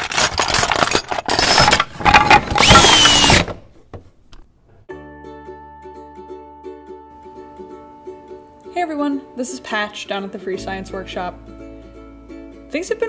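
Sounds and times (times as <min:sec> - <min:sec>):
quiet plucked-string music: 0:04.9 - 0:13.0.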